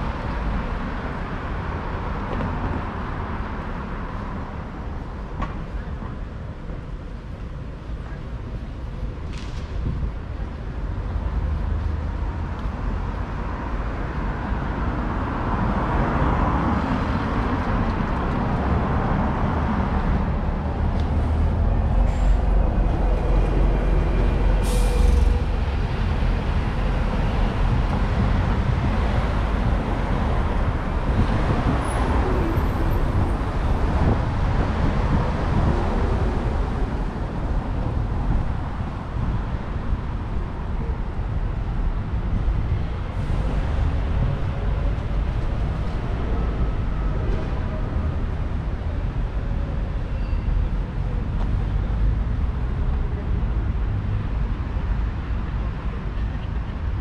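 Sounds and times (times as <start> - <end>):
bus engine rumble: 0.0 - 57.0
street traffic: 0.0 - 57.0
air brakes hiss: 22.0 - 22.5, 24.6 - 25.4.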